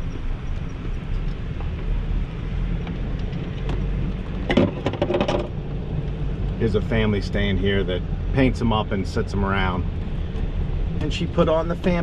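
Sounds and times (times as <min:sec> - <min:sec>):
golf cart rumble: 0:00.0 - 0:12.0
rattling knocks: 0:04.4 - 0:05.5.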